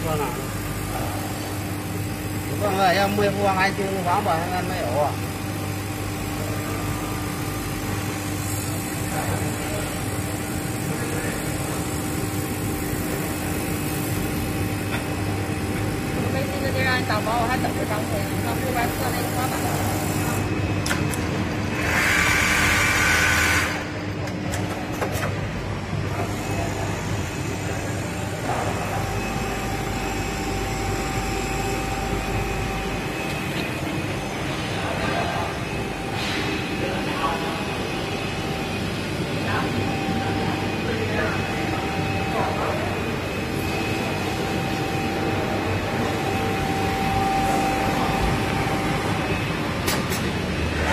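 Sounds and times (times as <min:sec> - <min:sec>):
thin steady whine: 0:00.0 - 0:50.9.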